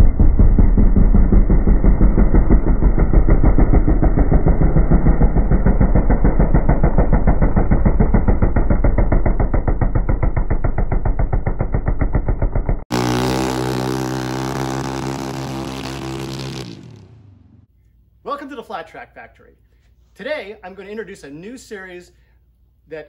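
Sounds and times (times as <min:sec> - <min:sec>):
racing motorcycle engine: 0:00.0 - 0:17.7.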